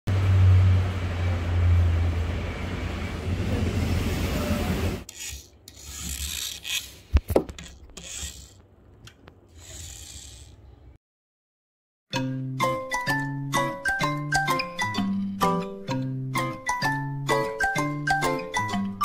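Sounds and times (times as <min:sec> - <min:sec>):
toy cars rubbing and scraping: 0:05.0 - 0:08.7, 0:09.4 - 0:10.8.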